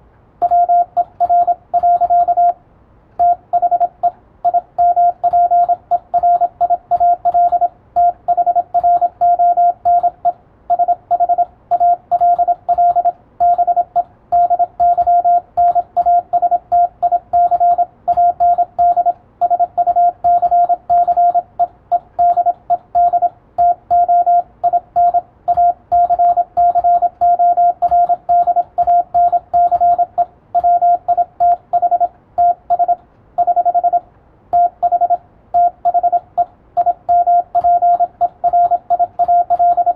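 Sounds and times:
morse code beeps: 0:00.4 - 0:02.6, 0:03.2 - 0:39.9.

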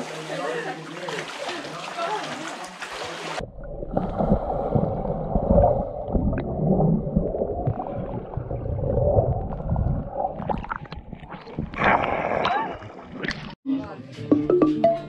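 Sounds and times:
water splashing: 0:00.0 - 0:13.6
underwater gurgling and bubbles: 0:02.9 - 0:13.6.

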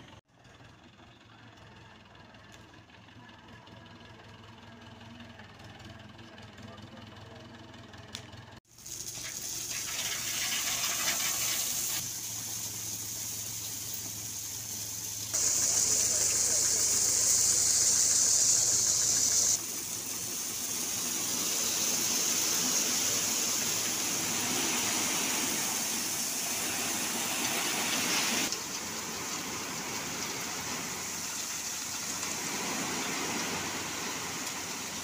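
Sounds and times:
tractor engine running: 0:00.0 - 0:35.0
crushed stone pouring: 0:19.9 - 0:34.9.

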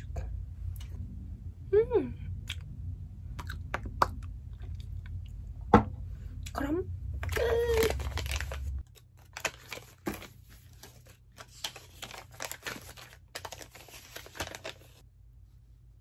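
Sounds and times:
paper receipts crinkling: 0:07.2 - 0:15.0.

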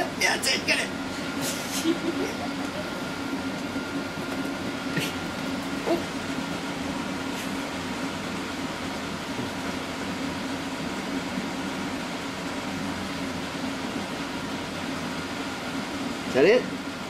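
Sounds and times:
steady mechanical hum: 0:00.0 - 0:17.0.

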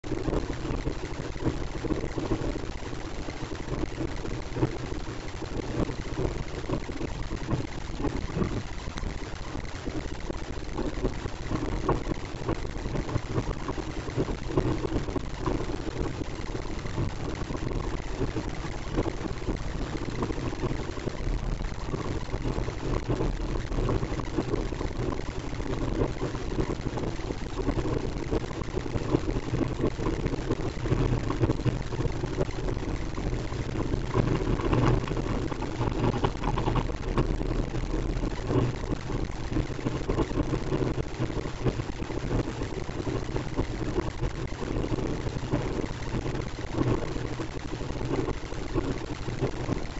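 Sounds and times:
wind rushing over microphone: 0:21.8 - 0:42.1.

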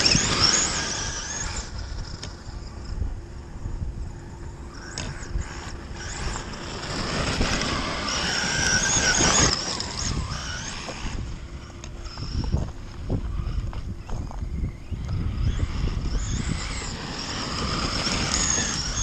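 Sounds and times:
electric motor whining: 0:00.0 - 0:19.0
wind on microphone: 0:00.0 - 0:19.0
tyres crunching gravel: 0:04.8 - 0:19.0.

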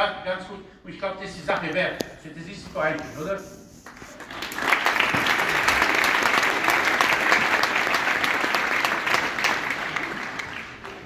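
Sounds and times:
audience applauding: 0:03.9 - 0:11.0.

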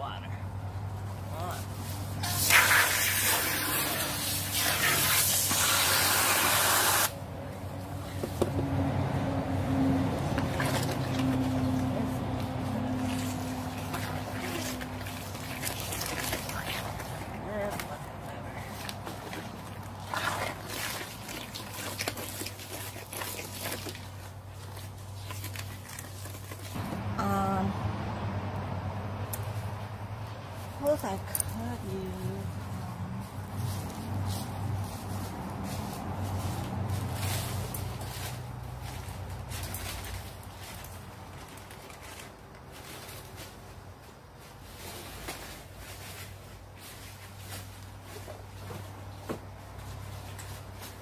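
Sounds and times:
wet concrete scraped in a tub: 0:02.0 - 0:07.1, 0:10.3 - 0:11.9, 0:12.8 - 0:26.8
hose nozzle spraying water: 0:02.2 - 0:07.1.

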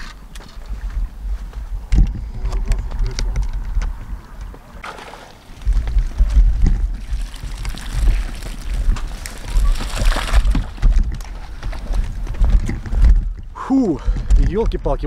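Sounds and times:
wind buffeting microphone: 0:00.6 - 0:04.8, 0:05.4 - 0:15.0
water draining from net: 0:04.8 - 0:05.7, 0:07.0 - 0:08.9.

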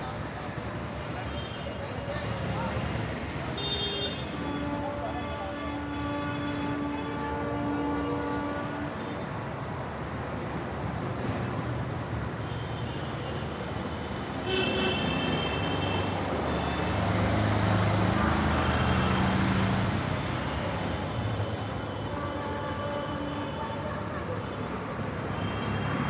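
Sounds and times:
road traffic roar: 0:00.0 - 0:26.0
vehicle horns tooting: 0:03.6 - 0:09.3, 0:14.4 - 0:17.0.

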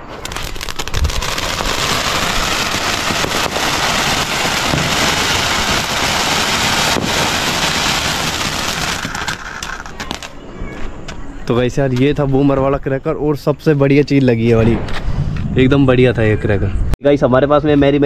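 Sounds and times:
firework crackles: 0:00.0 - 0:10.4
firework fountain hissing: 0:00.0 - 0:10.4.

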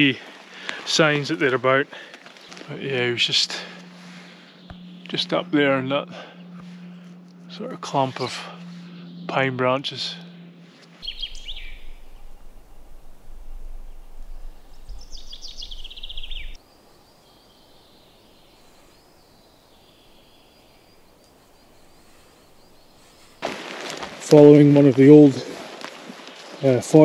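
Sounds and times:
songbirds chirping: 0:00.0 - 0:23.4, 0:24.2 - 0:27.0
descending bird trill: 0:02.5 - 0:23.4
low fluctuating rumble: 0:02.8 - 0:16.6, 0:18.4 - 0:23.4
faint outdoor hush: 0:10.1 - 0:26.6.

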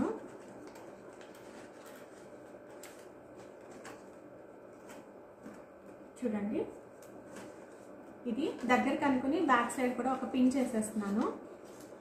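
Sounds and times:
paper crinkle ticks: 0:00.0 - 0:05.6
stiff paper rustling: 0:00.0 - 0:05.6, 0:10.3 - 0:12.0.

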